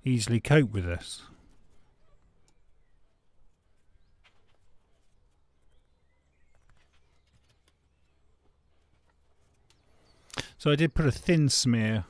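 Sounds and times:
faint clicks: 1.4 - 2.8.

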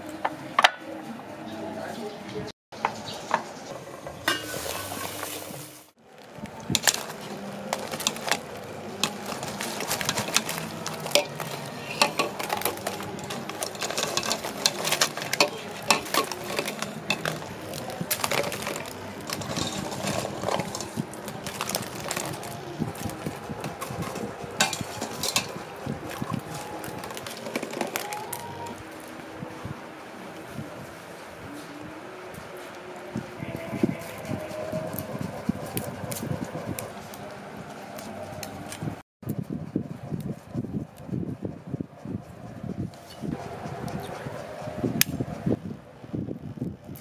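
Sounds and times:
eggs clicking against metal pot: 6.8 - 28.5.

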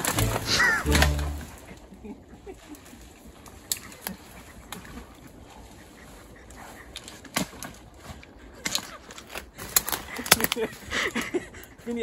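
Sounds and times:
twigs snapping and rustling: 0.0 - 1.8, 2.8 - 5.2, 6.9 - 10.9.

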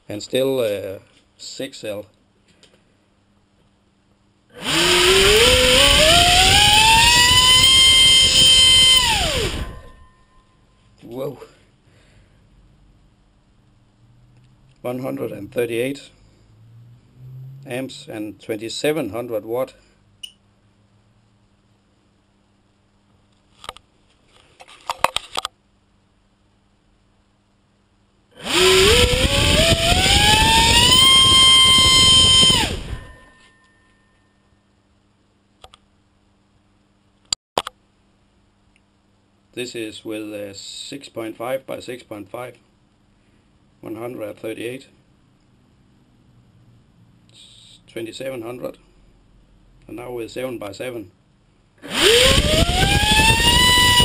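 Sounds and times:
electric motor whine: 4.6 - 10.0, 28.4 - 33.2, 51.8 - 54.0.

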